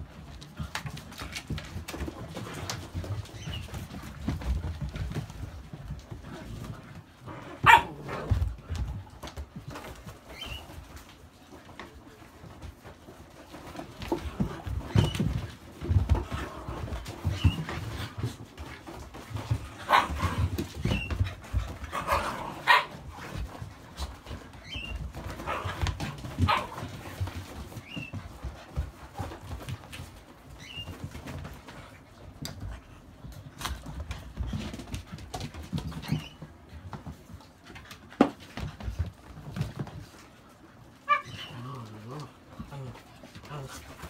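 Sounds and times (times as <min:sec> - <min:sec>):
dogs scuffling on rubber mat: 0:00.0 - 0:44.0
dog yelps: 0:07.6 - 0:08.0, 0:41.1 - 0:41.5.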